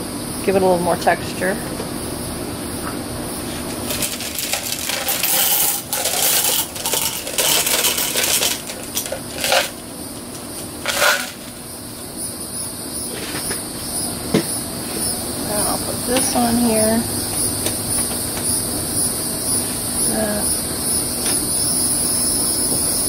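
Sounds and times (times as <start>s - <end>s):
glass gems clinking in glass cup: 3.9s - 9.8s, 10.8s - 11.5s.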